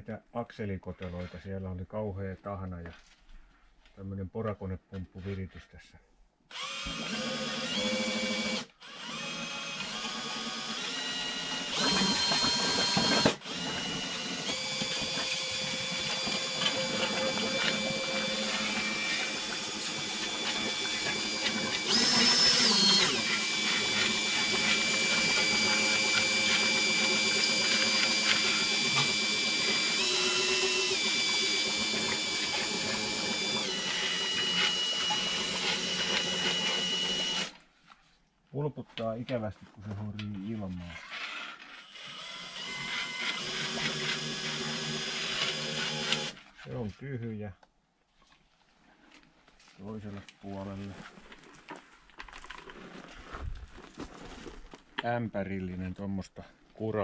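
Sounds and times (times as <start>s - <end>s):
cordless drill whining: 6.5s - 37.6s, 41.0s - 46.4s.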